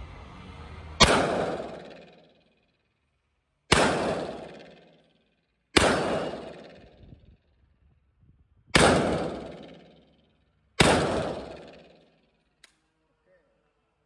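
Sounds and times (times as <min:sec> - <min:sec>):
rifle shots echoing: 0:01.0 - 0:02.2, 0:03.7 - 0:05.0, 0:05.8 - 0:07.0, 0:08.8 - 0:10.1, 0:10.8 - 0:12.1.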